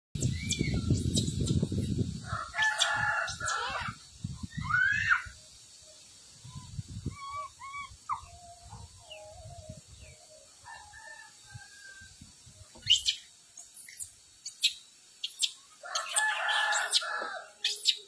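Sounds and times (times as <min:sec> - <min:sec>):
sharp high bird chirps: 0:00.2 - 0:01.7, 0:12.8 - 0:18.0
chickens clucking: 0:07.0 - 0:10.2.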